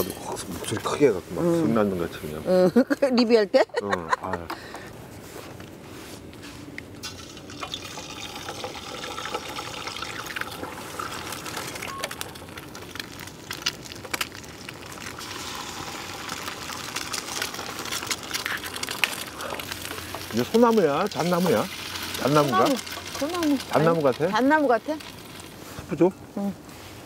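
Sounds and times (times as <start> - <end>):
food sizzling in a frying pan: 7.0 - 26.1.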